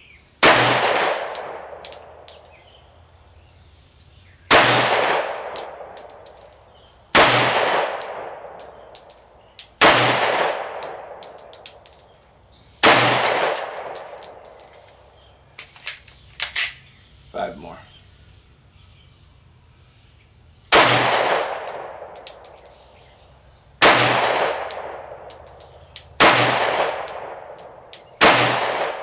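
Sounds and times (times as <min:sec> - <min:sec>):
pistol shots echoing: 0:00.4 - 0:02.6, 0:04.5 - 0:06.4, 0:07.1 - 0:12.0, 0:12.8 - 0:14.7, 0:20.7 - 0:22.8, 0:23.8 - 0:29.0.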